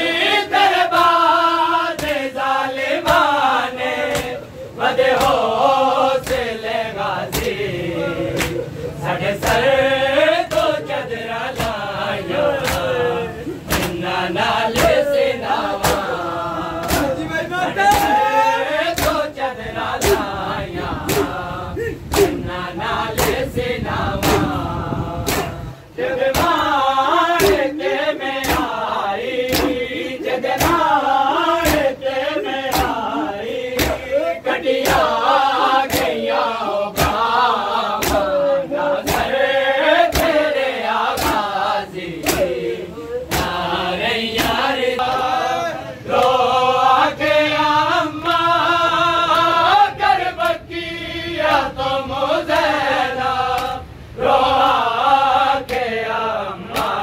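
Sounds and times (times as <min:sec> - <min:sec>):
men chanting together: 0:00.0 - 0:57.0
hands slapping chests: 0:02.0 - 0:02.3, 0:07.3 - 0:07.6, 0:08.3 - 0:08.7, 0:10.5 - 0:10.8, 0:11.6 - 0:11.8, 0:12.6 - 0:13.0, 0:13.7 - 0:14.0, 0:14.7 - 0:15.2, 0:15.8 - 0:16.1, 0:16.8 - 0:18.3, 0:18.9 - 0:19.3, 0:21.0 - 0:21.4, 0:22.1 - 0:22.5, 0:23.2 - 0:23.5, 0:24.2 - 0:24.6, 0:25.2 - 0:25.6, 0:26.2 - 0:26.8, 0:27.4 - 0:27.7, 0:28.4 - 0:28.8, 0:29.4 - 0:30.9, 0:31.6 - 0:31.9, 0:32.6 - 0:33.1, 0:33.7 - 0:34.1, 0:35.8 - 0:36.2, 0:36.9 - 0:38.4, 0:39.0 - 0:39.4, 0:40.1 - 0:40.5, 0:41.1 - 0:41.5, 0:42.2 - 0:42.6, 0:43.3 - 0:43.6, 0:44.4 - 0:45.2, 0:56.7 - 0:57.0.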